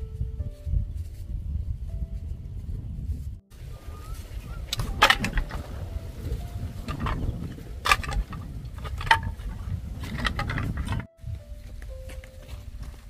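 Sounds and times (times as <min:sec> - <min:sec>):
steady low rumble: 0:00.0 - 0:13.0
bamboo pieces clacking: 0:04.6 - 0:11.1.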